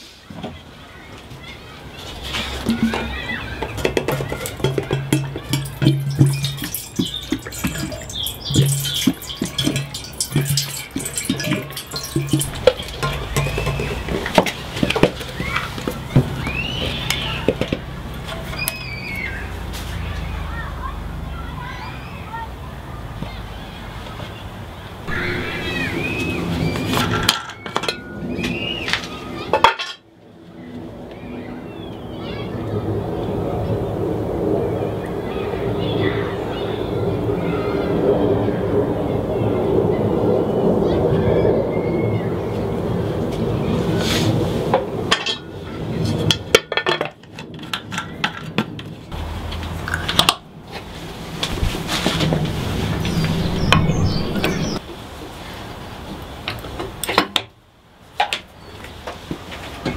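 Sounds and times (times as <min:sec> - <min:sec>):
metal and plastic clinks and knocks: 0:03.7 - 0:16.2
high gliding tones: 0:25.1 - 0:28.3.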